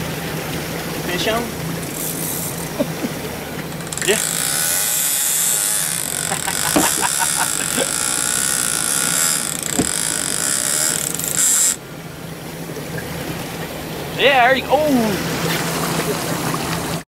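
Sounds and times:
boat engine hum: 0.0 - 17.0
short knocks: 3.6 - 11.8.

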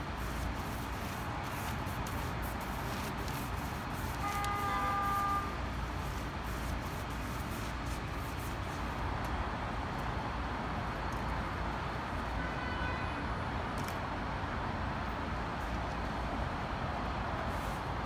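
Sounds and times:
city traffic rumble: 0.0 - 18.0
vehicle horn: 4.1 - 5.6, 12.4 - 13.2.

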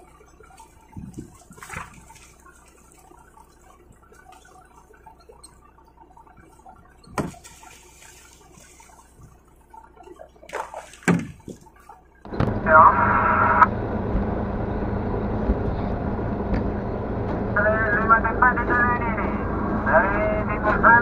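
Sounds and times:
water splashing and trickling: 0.0 - 12.3
low steady hum: 0.0 - 21.0
thuds: 7.0 - 7.8, 11.0 - 11.7, 12.3 - 12.7.

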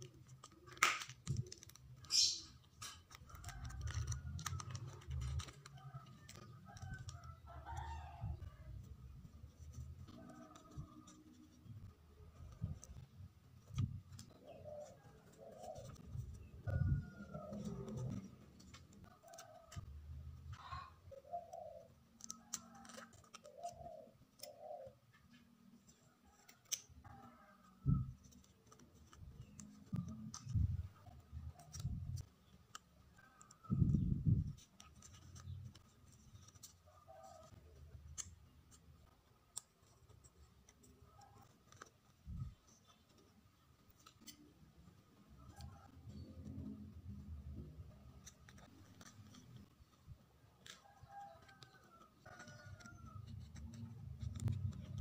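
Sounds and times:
paper rustling and peeling: 0.0 - 20.7, 21.7 - 24.6, 25.3 - 55.0
dove cooing: 14.3 - 18.3, 20.5 - 21.9, 22.7 - 25.1.

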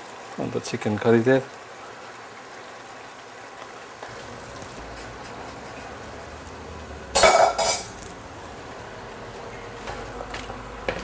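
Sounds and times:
metal cookware clanking: 7.1 - 8.0.

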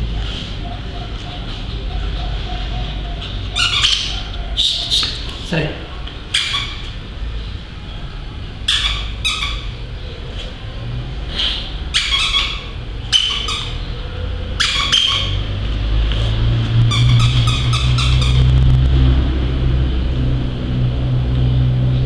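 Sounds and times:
dog toy squeaking: 2.5 - 5.2, 6.3 - 7.0, 8.6 - 9.8, 11.9 - 13.9, 14.6 - 15.4, 16.9 - 18.5
low steady rumble: 15.4 - 22.0.

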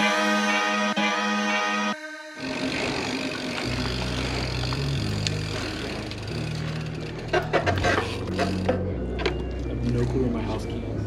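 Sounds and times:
bass line of background music: 0.0 - 11.0
bike tyres rolling over pavement: 2.5 - 10.0.

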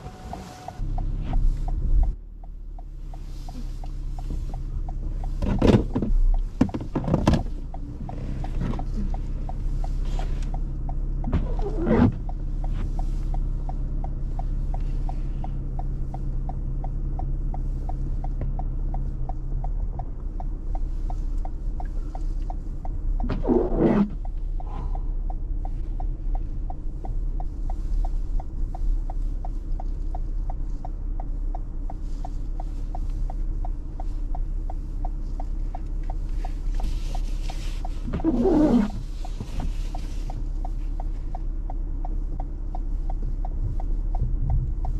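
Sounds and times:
tyres rumbling over snow: 23.0 - 26.8.

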